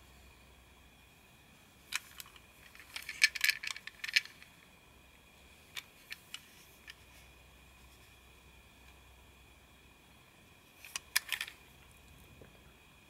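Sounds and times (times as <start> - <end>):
plastic toy train clicks: 1.9 - 4.5, 10.8 - 11.6.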